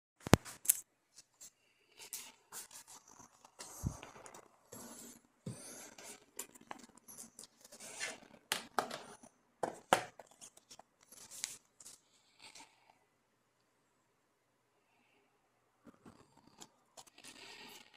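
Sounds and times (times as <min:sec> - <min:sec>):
cases clicking and tapping: 0:08.5 - 0:10.4.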